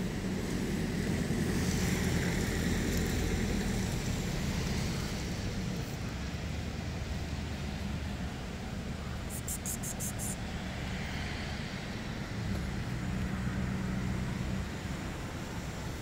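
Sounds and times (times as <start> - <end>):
low outdoor rumble and hiss: 0.0 - 16.0.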